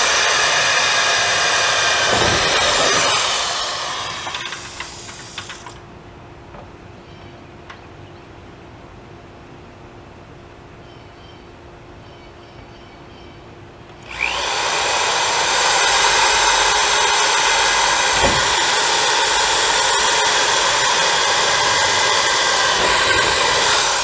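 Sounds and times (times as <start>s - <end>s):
electric drill drilling sheet metal: 0.0s - 5.8s, 14.0s - 24.0s.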